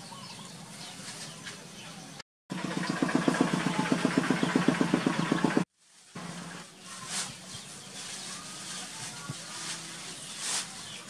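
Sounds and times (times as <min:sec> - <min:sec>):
small engine running: 0:02.5 - 0:06.7.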